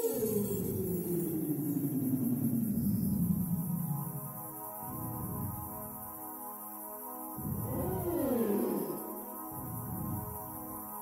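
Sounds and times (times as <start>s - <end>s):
drone background music: 0.0s - 11.0s
low rumble: 4.9s - 6.0s, 7.4s - 9.0s, 9.6s - 10.5s
falling gliding tone: 7.4s - 10.3s.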